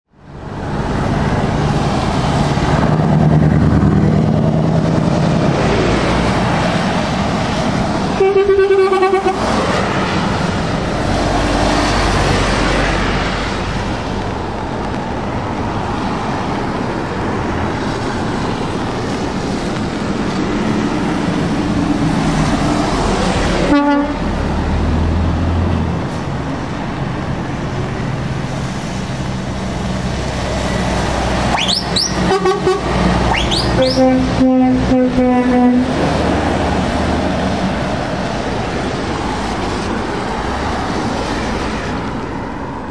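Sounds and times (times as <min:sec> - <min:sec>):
trucks passing on wet road: 0:00.1 - 0:42.9
truck air horn: 0:08.2 - 0:09.6, 0:23.6 - 0:24.2, 0:31.5 - 0:36.0.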